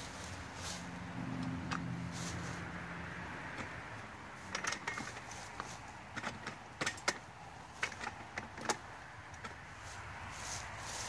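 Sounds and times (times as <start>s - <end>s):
cot frame clicks and knocks: 4.4s - 9.7s.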